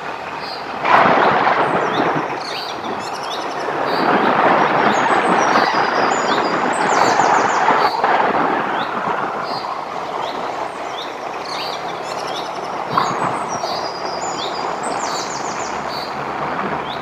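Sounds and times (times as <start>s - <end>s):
birds chirping: 0.0s - 17.0s
wind rushing: 0.7s - 17.0s
bird trill: 1.8s - 4.2s, 8.8s - 16.2s.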